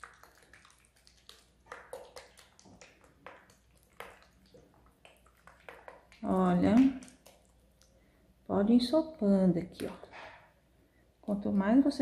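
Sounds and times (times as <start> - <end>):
liquid squirting onto cloth: 0.0 - 8.0.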